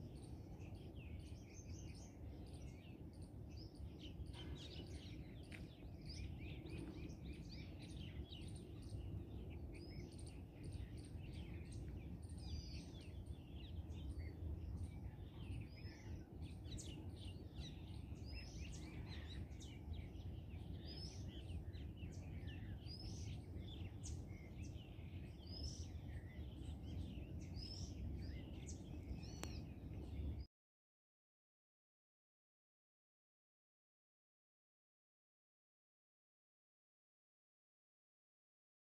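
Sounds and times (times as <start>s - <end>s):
birds chirping in chorus: 0.0s - 30.5s
steady low rumble: 0.0s - 30.5s.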